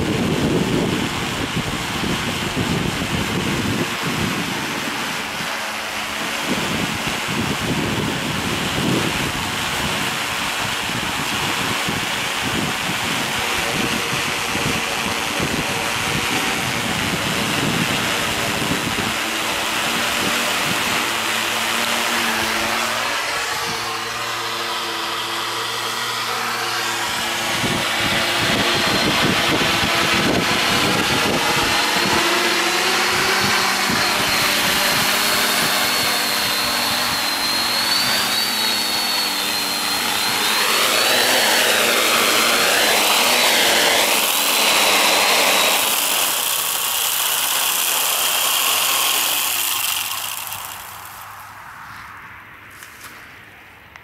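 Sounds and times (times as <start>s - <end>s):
wind buffeting microphone: 0.0s - 24.5s, 27.0s - 43.8s
drone motors whining: 0.0s - 53.3s.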